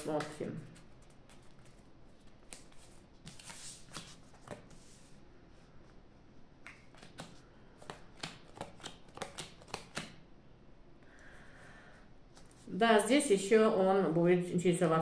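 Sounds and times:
playing cards snapping on table: 6.7s - 10.2s.

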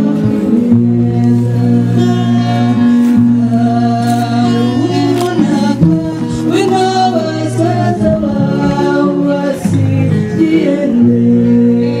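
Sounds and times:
instrumental backing music: 0.0s - 12.0s
woman singing: 0.0s - 12.0s.

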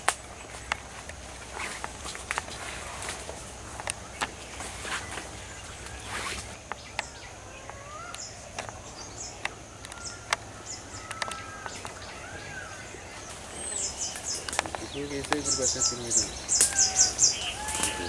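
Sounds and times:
birds whistling: 3.9s - 18.0s
high bird chirps: 4.0s - 18.0s.

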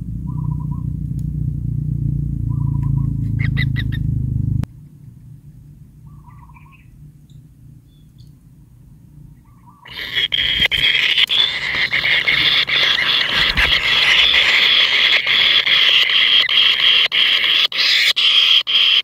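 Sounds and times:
low rumble: 0.0s - 14.5s
harsh bird calling: 0.2s - 0.9s, 2.5s - 4.2s, 6.0s - 7.0s, 9.4s - 19.0s
nestlings trilled calls: 6.1s - 8.3s, 9.5s - 19.0s.

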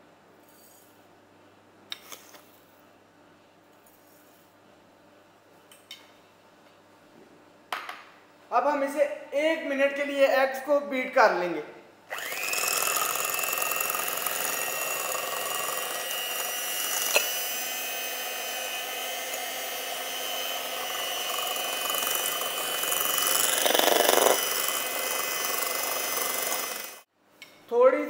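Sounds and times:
electric hand mixer whining: 12.1s - 27.1s.

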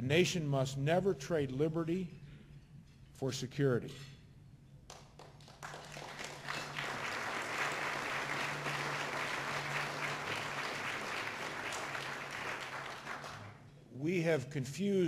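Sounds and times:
audience applauding: 5.2s - 13.6s.

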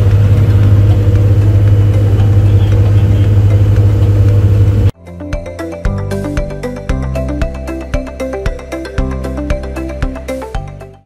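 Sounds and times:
boat engine droning: 0.0s - 4.9s
background music: 0.0s - 11.0s.

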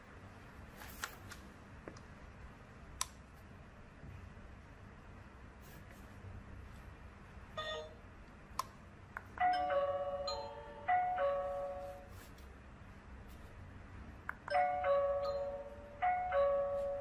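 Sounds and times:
doorbell chime ding-dong melody: 7.6s - 8.0s, 9.4s - 12.2s, 14.5s - 17.0s.

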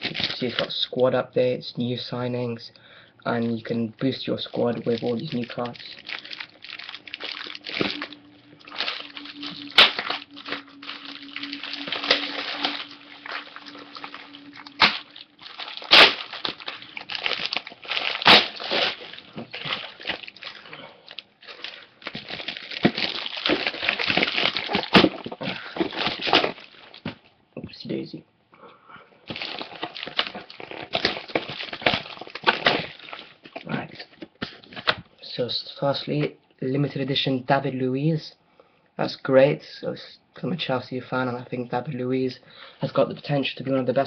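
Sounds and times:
plastic wrapping crinkling: 0.0s - 0.8s, 3.4s - 27.3s, 29.2s - 35.1s
plastic wrapping tearing: 0.0s - 0.8s, 4.0s - 27.2s, 29.3s - 35.0s.

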